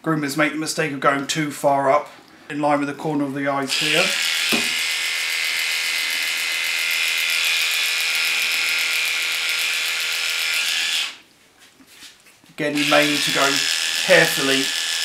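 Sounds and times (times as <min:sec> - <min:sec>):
dog clippers buzzing: 0:03.7 - 0:11.2, 0:12.8 - 0:15.0.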